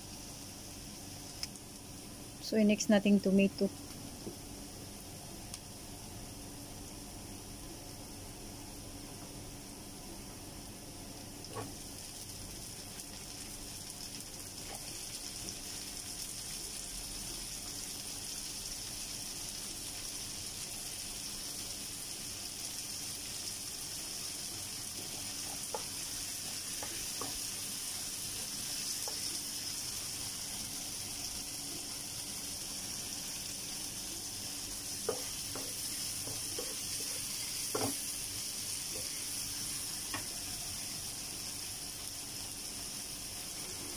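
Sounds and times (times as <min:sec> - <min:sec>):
vegetables sizzling in oil: 0:00.0 - 0:43.9
wooden spoon tapping pan: 0:37.7 - 0:38.0.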